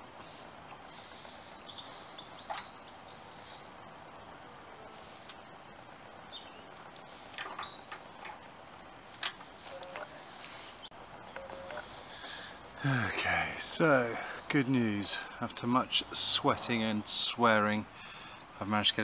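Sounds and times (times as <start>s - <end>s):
outdoor background noise: 0.0s - 19.0s
faint bird chirps: 0.1s - 3.9s, 6.2s - 8.5s.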